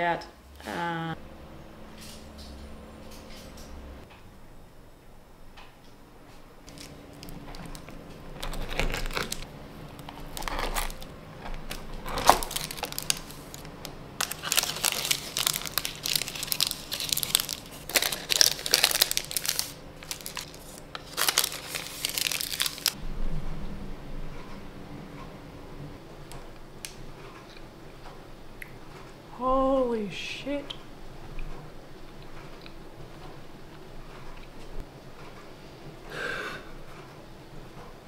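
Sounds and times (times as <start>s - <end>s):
baking paper crinkling: 6.6s - 23.0s.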